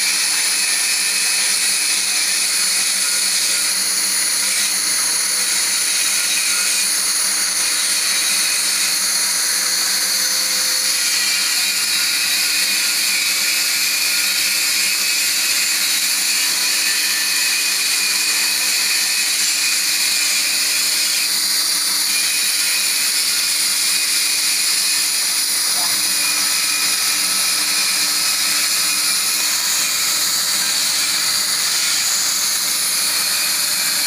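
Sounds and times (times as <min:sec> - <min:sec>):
plasma cutter hissing: 0:24.7 - 0:34.0.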